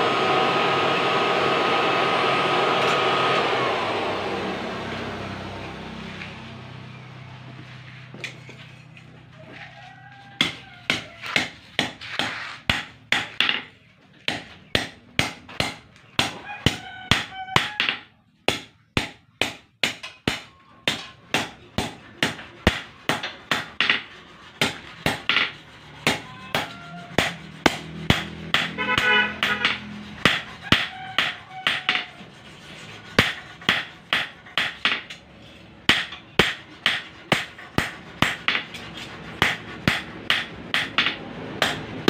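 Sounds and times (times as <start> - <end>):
hammer clanging on hot steel: 14.3 - 32.2, 35.9 - 41.9.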